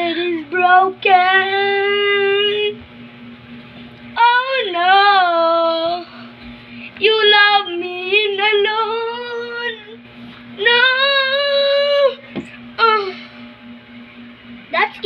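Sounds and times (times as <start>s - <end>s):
girl singing: 0.0s - 2.8s, 4.2s - 6.1s, 7.0s - 10.0s, 10.6s - 12.2s
steady low hum: 0.0s - 15.0s.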